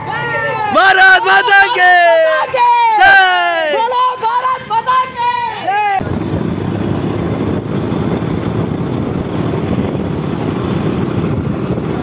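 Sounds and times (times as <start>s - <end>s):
motorcycle engine rumble: 6.0s - 12.0s
wind rushing over microphone: 6.0s - 12.0s.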